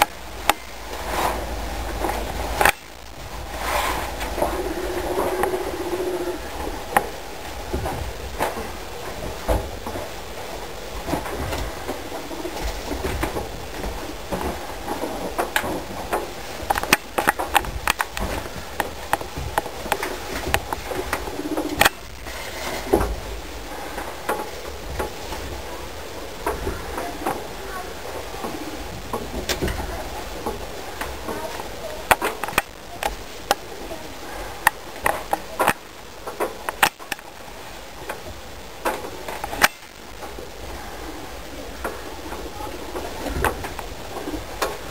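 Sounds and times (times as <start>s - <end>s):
sharp clicks and knocks: 0.0s - 5.6s, 11.0s - 23.3s, 28.4s - 33.7s, 34.6s - 37.3s, 38.0s - 40.4s
squirrel chewing: 0.0s - 44.9s.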